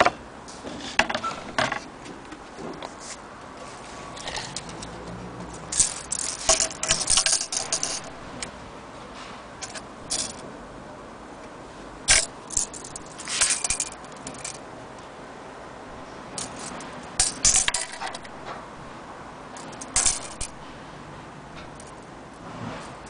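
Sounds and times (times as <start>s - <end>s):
tape measure clicking and rattling: 5.6s - 8.5s, 9.6s - 10.4s, 12.1s - 14.6s, 16.3s - 18.5s, 19.6s - 20.7s.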